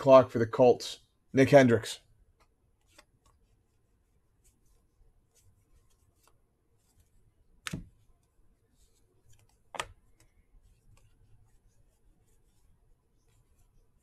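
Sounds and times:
cards flipping and rustling: 2.4 - 3.8, 5.3 - 13.8.

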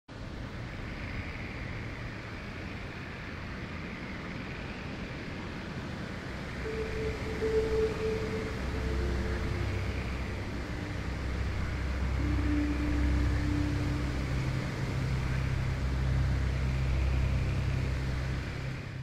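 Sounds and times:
faint held tones: 6.6 - 16.0
low rumble: 6.6 - 19.0.

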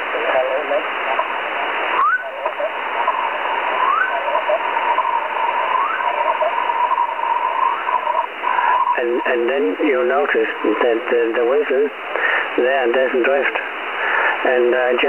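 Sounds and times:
hissy radio noise: 0.0 - 15.0
steady whistle tone: 2.0 - 2.3, 3.7 - 9.0.

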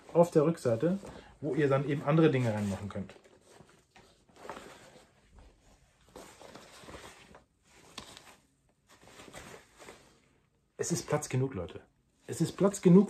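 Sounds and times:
fabric bag rustling: 1.9 - 10.3.

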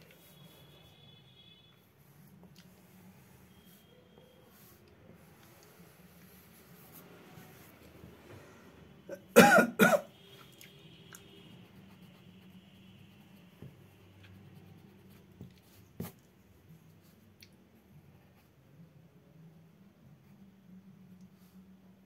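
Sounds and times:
person coughing: 9.1 - 10.1.

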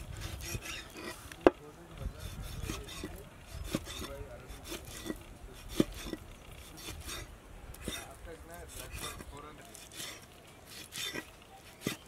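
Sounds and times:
knife cutting fish: 2.2 - 8.1, 8.8 - 12.0.

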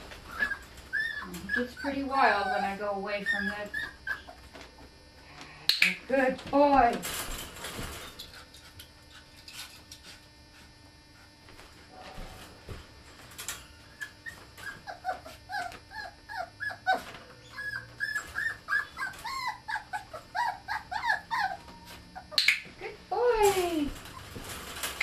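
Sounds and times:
puppy whining and crying: 0.2 - 4.6, 13.8 - 22.4
puppy yelping: 0.3 - 4.5, 14.0 - 22.6.

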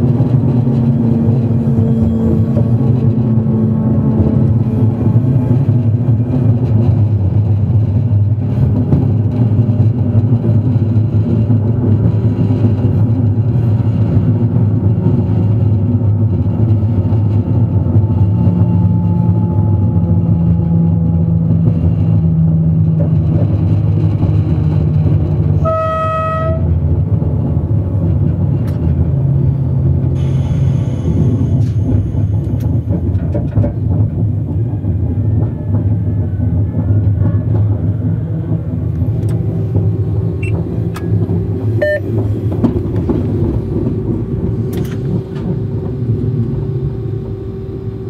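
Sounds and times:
train low rumble: 0.0 - 48.0
low steady hum: 36.8 - 48.0
short pitched tone: 41.8 - 42.1.

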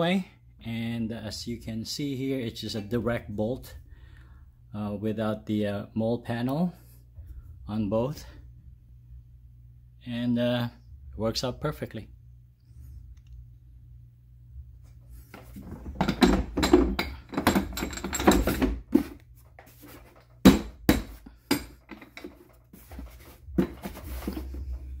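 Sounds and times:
plastic canisters clattering: 15.4 - 21.2, 21.8 - 24.8.

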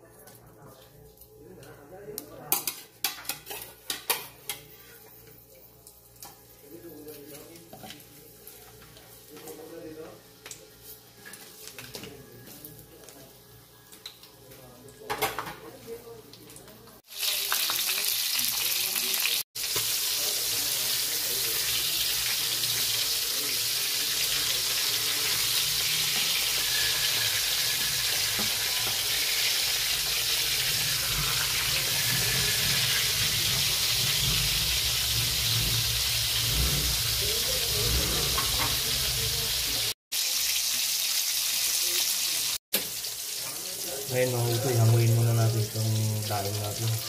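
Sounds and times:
fish sizzling in hot oil: 17.0 - 47.0.

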